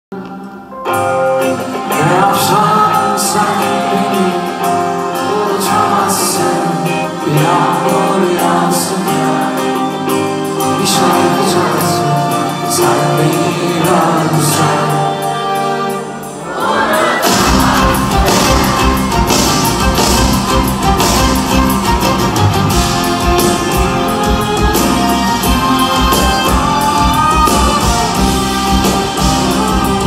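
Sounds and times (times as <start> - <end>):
live rock band: 0.1 - 30.0
man singing: 1.4 - 16.0, 23.1 - 30.0.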